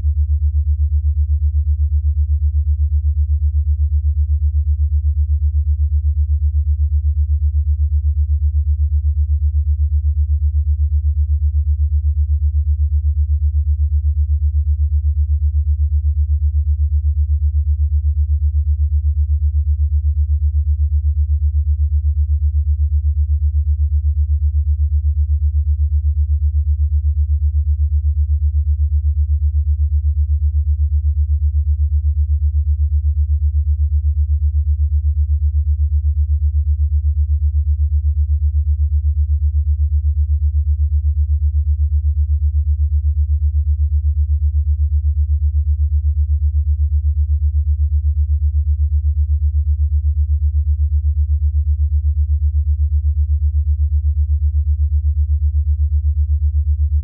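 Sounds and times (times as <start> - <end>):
low pulsing sine tone: 0.0 - 57.0.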